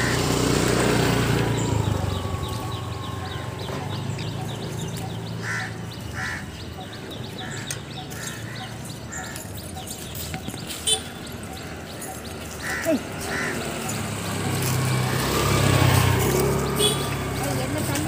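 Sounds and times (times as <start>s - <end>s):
low engine hum: 0.0s - 8.9s
birds calling: 0.0s - 18.0s.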